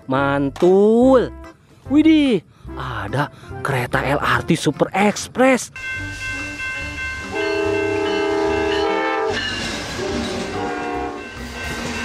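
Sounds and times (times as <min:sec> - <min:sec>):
train rumbling on rails: 0:05.7 - 0:12.0
train horn blasts: 0:05.8 - 0:11.4.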